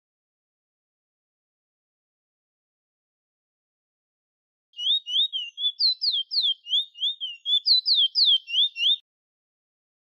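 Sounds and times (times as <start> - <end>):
finch singing whistled notes: 4.8 - 9.0.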